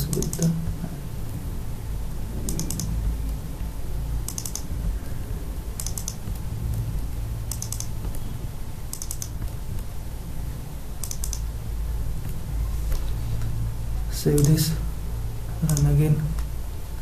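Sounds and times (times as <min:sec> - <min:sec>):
keyboard typing: 0:00.0 - 0:00.8, 0:02.4 - 0:03.4, 0:04.2 - 0:05.0, 0:05.8 - 0:06.8, 0:07.5 - 0:08.2, 0:08.9 - 0:09.9, 0:11.0 - 0:11.5, 0:14.2 - 0:14.8, 0:15.6 - 0:16.5
steady low hum: 0:00.0 - 0:17.0.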